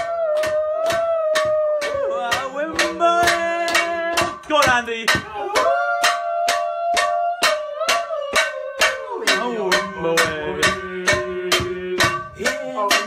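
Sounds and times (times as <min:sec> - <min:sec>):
voices singing long notes: 0:00.0 - 0:04.3
knife beating a frying pan: 0:00.0 - 0:13.0.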